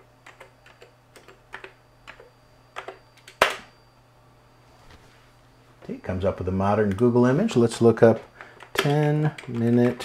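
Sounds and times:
keyboard typing: 0:00.0 - 0:03.5, 0:08.1 - 0:10.0.

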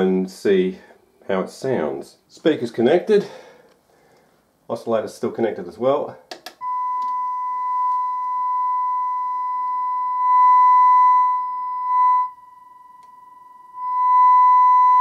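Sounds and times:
sine test tone from speaker: 0:06.6 - 0:15.0.

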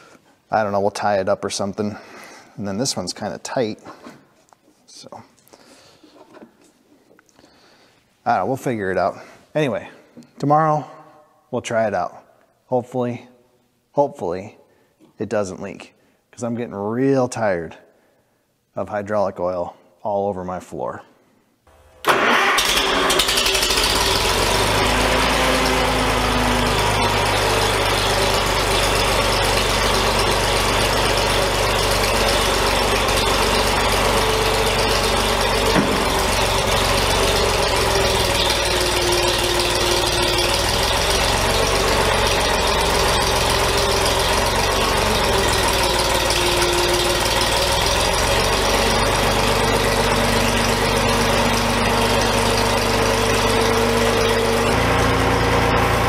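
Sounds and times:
tractor engine running: 0:21.7 - 0:56.0.

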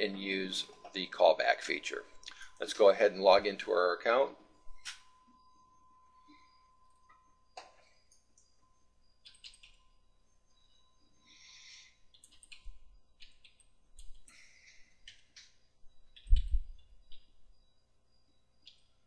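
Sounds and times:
computer keyboard typing: 0:09.2 - 0:09.8, 0:12.1 - 0:14.4, 0:15.0 - 0:15.5, 0:16.1 - 0:17.4.

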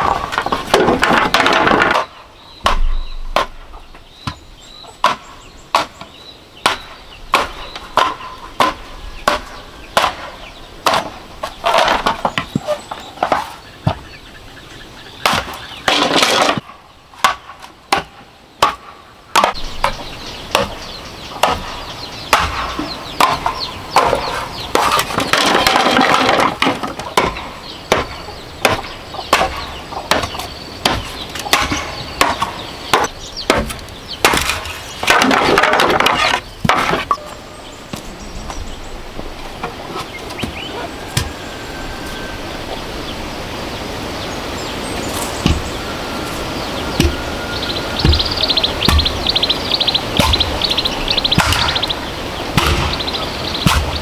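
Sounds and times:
blade striking bamboo: 0:00.0 - 0:03.8, 0:17.2 - 0:20.8, 0:22.3 - 0:37.2, 0:51.4 - 0:51.8, 0:52.5 - 0:53.0, 0:53.6 - 0:54.0
bamboo splitting and splintering: 0:00.0 - 0:04.4, 0:05.0 - 0:14.0, 0:15.2 - 0:20.8, 0:21.4 - 0:21.7, 0:22.3 - 0:37.2, 0:46.3 - 0:50.6, 0:51.3 - 0:54.0.

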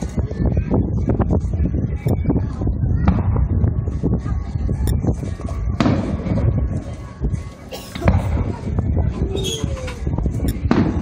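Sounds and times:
steady low rumble: 0:00.0 - 0:11.0
fireworks bursting bangs: 0:03.0 - 0:03.8, 0:05.6 - 0:06.7, 0:10.6 - 0:11.0.

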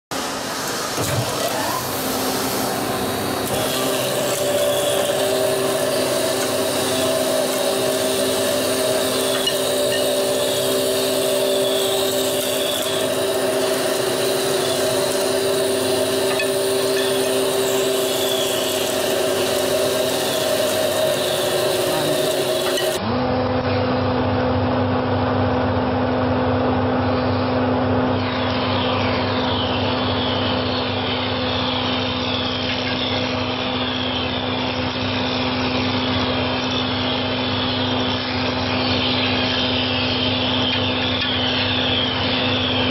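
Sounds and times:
milling machine humming: 0:00.1 - 0:23.1
machine pulsing hum: 0:00.2 - 0:42.9
wood rasping: 0:03.5 - 0:23.0.

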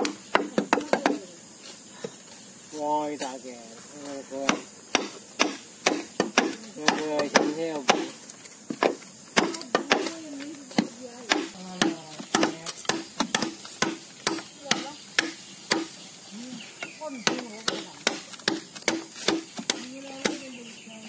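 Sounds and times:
machete chopping bamboo: 0:00.0 - 0:01.3, 0:04.4 - 0:16.0, 0:16.8 - 0:20.5.

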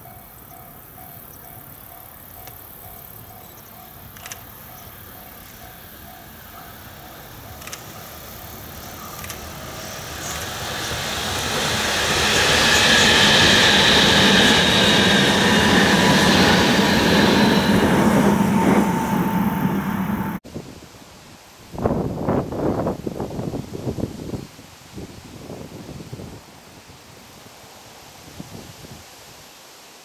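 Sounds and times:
train rushing past: 0:00.0 - 0:20.4
train whining tones: 0:00.0 - 0:20.4.

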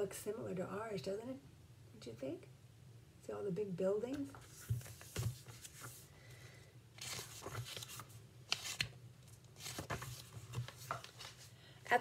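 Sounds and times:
book pages turning: 0:04.2 - 0:06.1, 0:07.0 - 0:11.5.

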